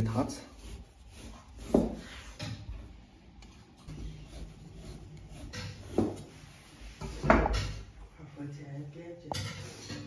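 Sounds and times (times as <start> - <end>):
dough rubbed across wooden board: 0.0 - 2.5, 3.9 - 7.3.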